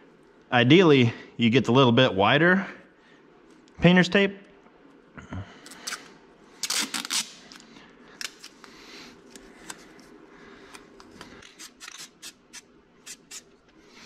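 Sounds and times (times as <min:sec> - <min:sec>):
tape ripping off roll: 0:06.6 - 0:07.4.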